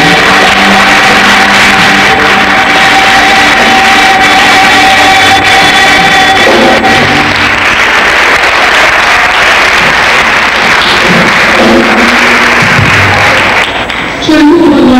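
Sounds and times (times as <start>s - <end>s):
choir holding final chord: 0.0s - 7.8s
crowd applauding and cheering: 0.0s - 14.3s.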